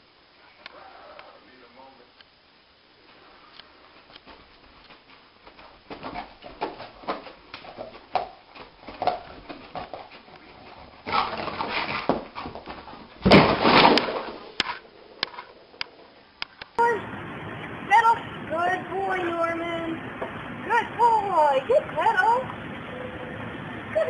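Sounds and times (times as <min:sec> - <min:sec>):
paws scraping on carpet: 0:03.1 - 0:13.2
dog banging into wall: 0:11.0 - 0:14.8.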